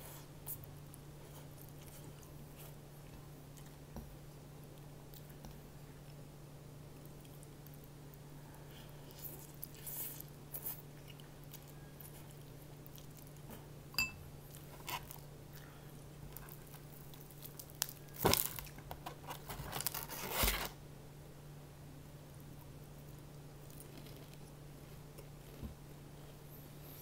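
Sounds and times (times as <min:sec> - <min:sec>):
light clink: 0:14.0 - 0:14.2
crunching fried chicken: 0:14.4 - 0:20.5, 0:23.5 - 0:25.6.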